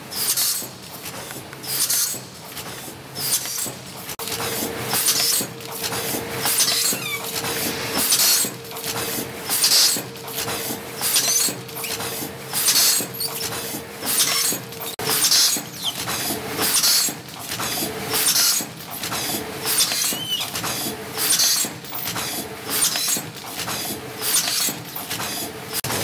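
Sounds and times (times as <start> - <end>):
machine humming: 4.2 - 15.1
faint short squeaks: 6.6 - 7.4.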